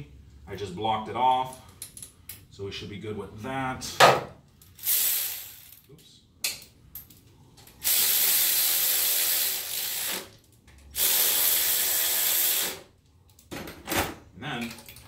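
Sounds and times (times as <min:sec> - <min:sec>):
electric ratchet running: 0:07.8 - 0:12.9.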